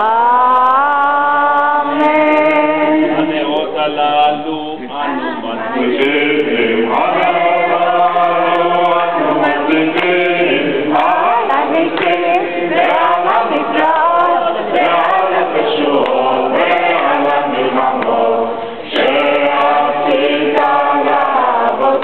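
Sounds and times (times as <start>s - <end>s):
group singing in unison: 0.0s - 22.0s.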